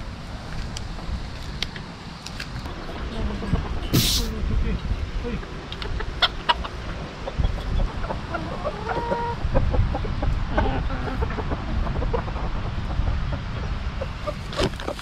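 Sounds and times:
chickens clucking: 5.4s - 15.0s
low rumble: 9.4s - 14.3s.

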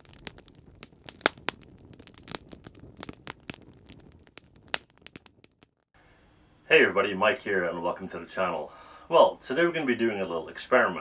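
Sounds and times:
campfire crackling: 0.0s - 6.0s.

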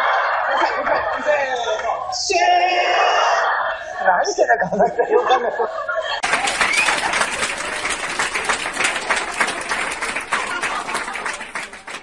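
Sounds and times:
applause: 6.2s - 12.0s.

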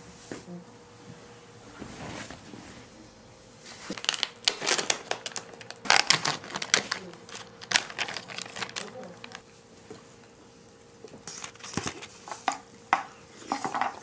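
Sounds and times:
plastic packaging crinkling: 3.9s - 9.4s.

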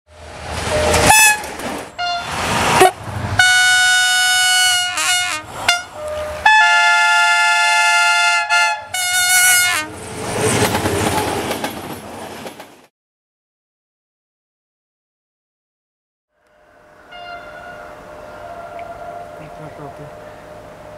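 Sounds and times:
passing train rumble: 0.1s - 12.9s, 16.4s - 20.9s
diesel locomotive horn blasts: 0.7s - 10.0s, 16.5s - 20.9s.

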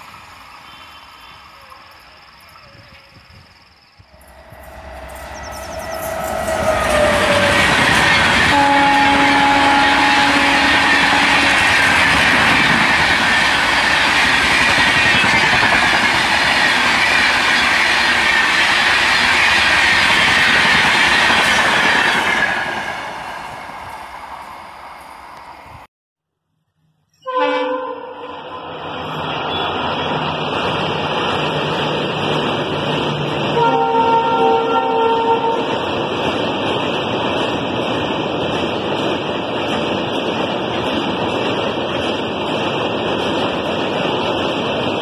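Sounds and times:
train wheels rushing on rails: 0.0s - 25.9s, 28.6s - 45.0s
train horn: 4.2s - 11.8s, 27.2s - 28.8s, 33.4s - 35.8s.

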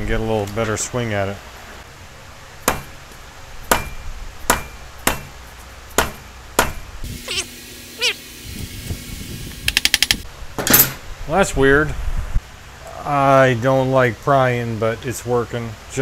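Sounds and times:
mallet striking metal engine: 3.7s - 5.4s.

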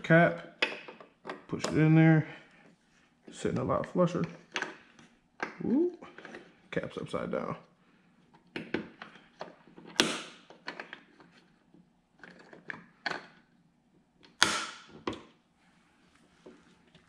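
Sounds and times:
sharp plastic snaps: 9.9s - 10.5s, 14.2s - 14.9s.

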